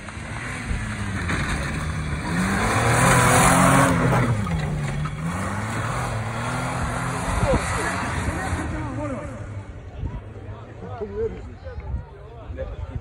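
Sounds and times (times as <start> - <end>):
car engine revving: 0.0 - 9.8
tyres rushing on dirt: 0.0 - 12.3.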